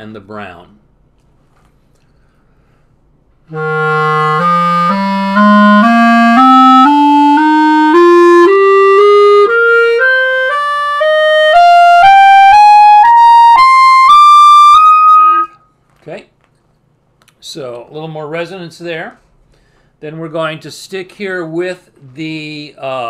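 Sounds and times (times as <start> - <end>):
clarinet playing ascending scale: 3.5 - 15.6.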